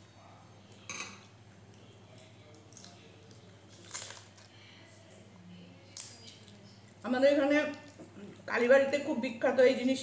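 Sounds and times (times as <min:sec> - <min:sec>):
flatbread rustling tears: 0:03.7 - 0:04.6.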